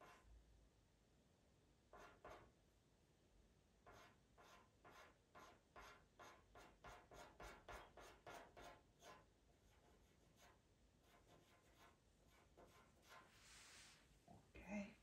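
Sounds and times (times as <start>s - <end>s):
pencil scratching on sanded paper: 0.0s - 0.3s, 1.9s - 2.5s, 3.8s - 13.6s.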